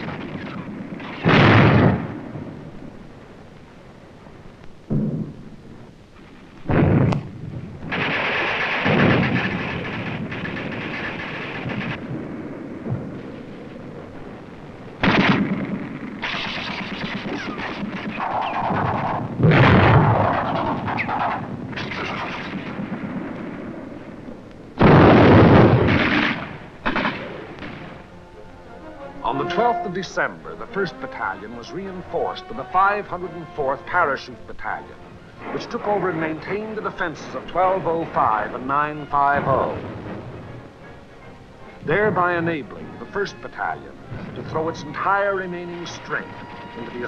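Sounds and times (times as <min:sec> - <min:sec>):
gunfire: 0:00.0 - 0:02.5, 0:06.6 - 0:13.4, 0:15.0 - 0:24.2, 0:24.8 - 0:28.2, 0:39.2 - 0:40.7
shells exploding: 0:00.0 - 0:02.7, 0:06.2 - 0:28.4, 0:34.8 - 0:40.7
rumbling and crackling: 0:00.0 - 0:47.0.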